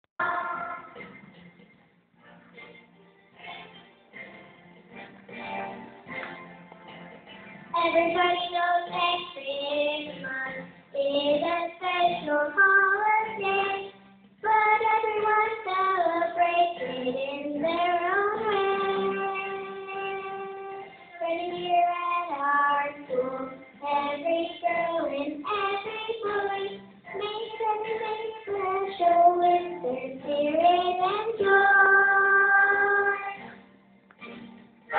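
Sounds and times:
boy singing into microphone: 0.2s - 1.0s, 7.8s - 33.5s
backing track from stereo: 0.2s - 34.9s.

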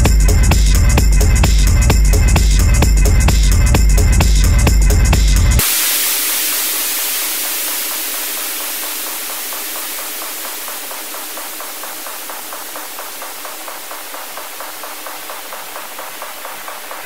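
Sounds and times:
filtered percussion ticking: 0.0s - 17.0s
white-noise wash: 5.6s - 17.0s.

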